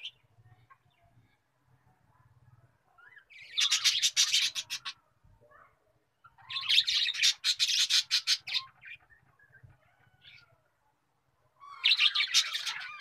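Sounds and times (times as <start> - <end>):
bird chirping: 3.0 - 10.6, 11.6 - 13.0.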